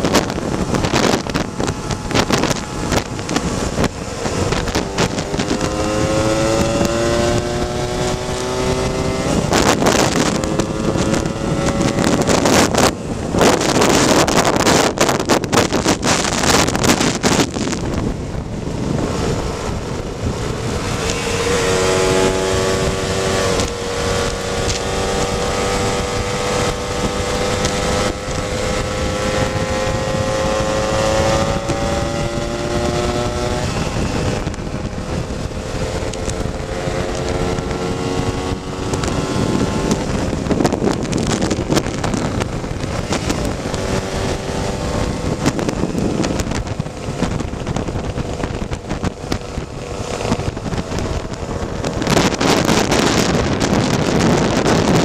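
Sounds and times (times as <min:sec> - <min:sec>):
wind rushing over microphone: 0:00.0 - 0:55.0
two-stroke scooter engine: 0:22.6 - 0:28.5.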